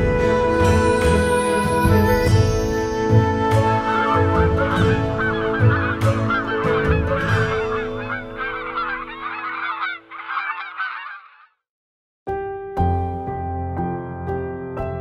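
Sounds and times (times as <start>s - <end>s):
soft background music: 0.0s - 10.6s
flock of birds calling: 3.9s - 11.5s.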